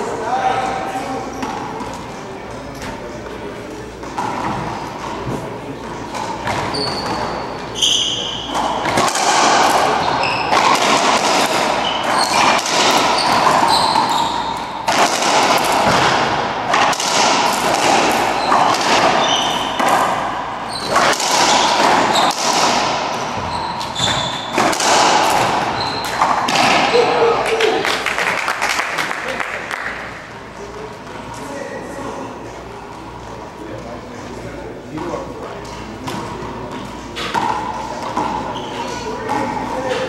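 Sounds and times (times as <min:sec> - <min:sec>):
sneakers squeaking on hardwood: 0:04.0 - 0:15.0, 0:17.9 - 0:26.6, 0:36.1 - 0:40.0
ball cracking off racquets: 0:08.5 - 0:27.0
ball smacking walls and floor: 0:08.6 - 0:20.2, 0:20.8 - 0:26.9.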